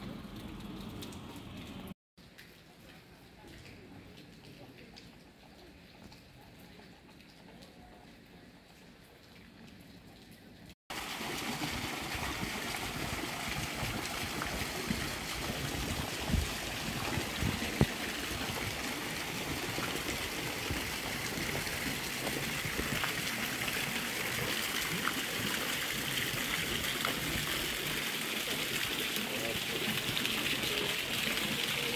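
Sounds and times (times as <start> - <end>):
fountain water splashing: 10.9 - 31.9.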